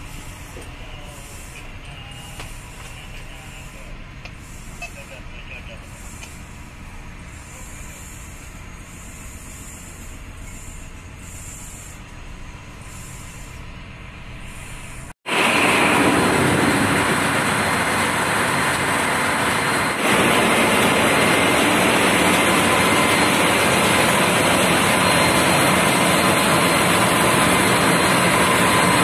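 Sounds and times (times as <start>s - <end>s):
soft hissing pulses: 0.0s - 15.1s
engine-room machinery running: 0.0s - 29.0s.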